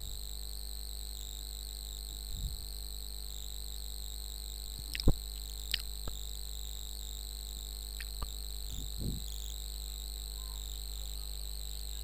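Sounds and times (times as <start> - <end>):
electrical hum and hiss: 0.0 - 12.0.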